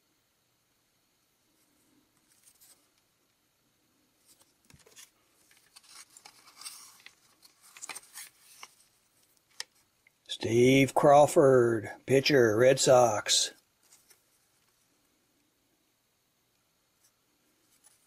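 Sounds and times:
cards rustling: 1.6s - 3.1s, 4.2s - 10.0s, 13.7s - 14.9s.

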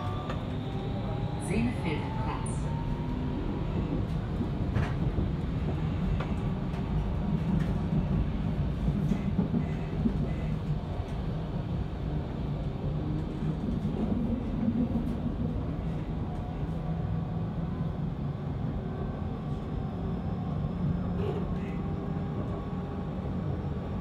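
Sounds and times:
train wheels rumbling: 0.0s - 17.9s.

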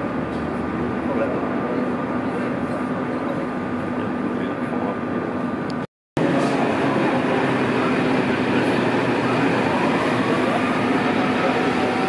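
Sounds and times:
passenger train rolling past: 6.2s - 12.0s.

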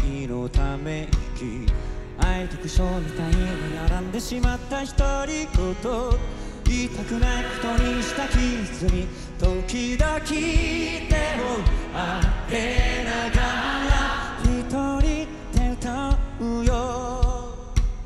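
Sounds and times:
male lead voice singing: 0.0s - 17.8s
live rock band: 0.0s - 18.0s
drum beat: 2.2s - 5.8s, 6.7s - 16.3s
choir of young voices singing: 2.5s - 4.6s, 6.8s - 9.3s, 10.2s - 14.8s.

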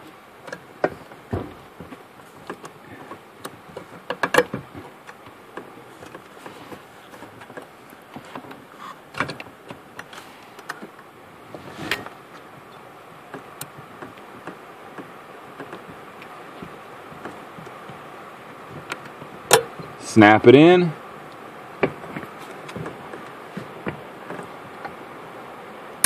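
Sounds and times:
small clicks and knocks of parts: 0.4s - 11.1s, 11.9s - 18.1s.

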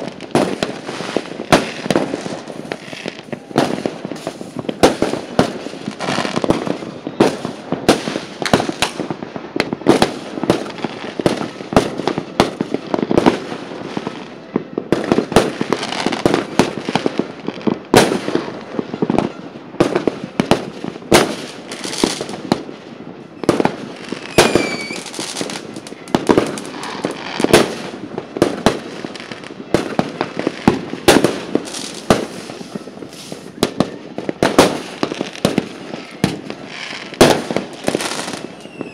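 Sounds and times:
fireworks bangs: 0.0s - 38.9s
falling whistle: 24.4s - 25.0s, 38.4s - 38.9s.

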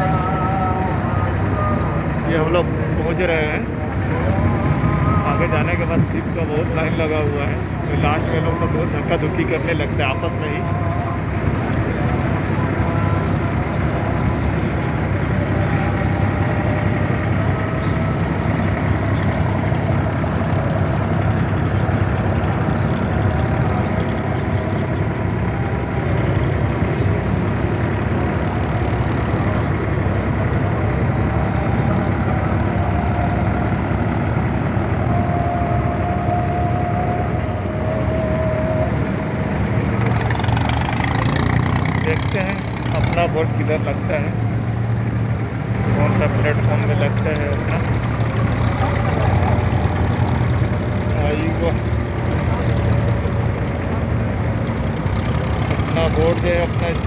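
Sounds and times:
boat engine droning: 0.0s - 57.0s
water around hull: 0.0s - 57.0s
bright busy clatter: 45.8s - 57.0s.

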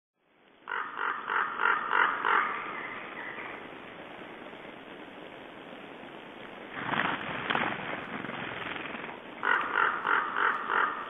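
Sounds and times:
steady hiss: 0.2s - 11.0s
raven croaking: 0.6s - 3.7s, 6.7s - 11.0s.

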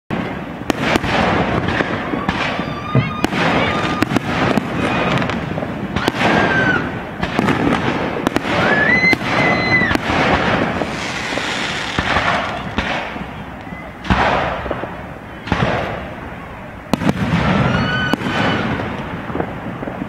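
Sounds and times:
fireworks bangs and pops: 0.1s - 20.0s
fireworks crackling: 0.1s - 20.0s
high whistles: 10.8s - 14.1s.

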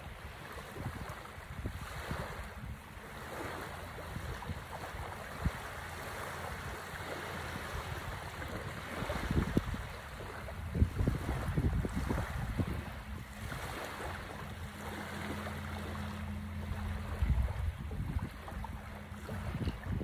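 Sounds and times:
small waves washing onto sand: 0.0s - 20.0s
wind buffeting microphone: 0.0s - 20.0s.

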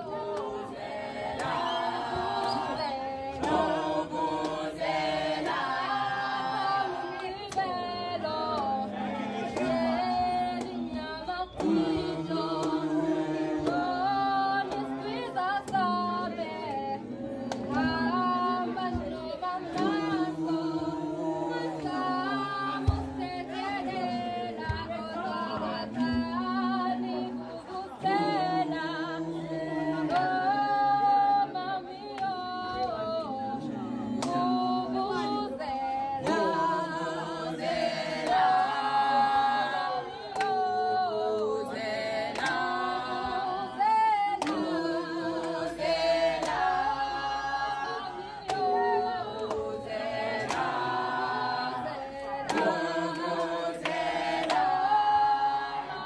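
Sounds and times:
choir singing in harmony: 0.0s - 56.0s.

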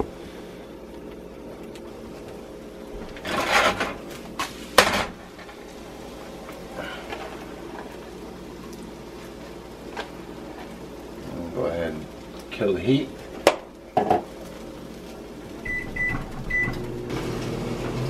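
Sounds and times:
faint steady hum: 0.0s - 17.1s
frying pan tossing rush: 3.0s - 15.7s
pan knocking on burner: 13.4s - 14.3s.

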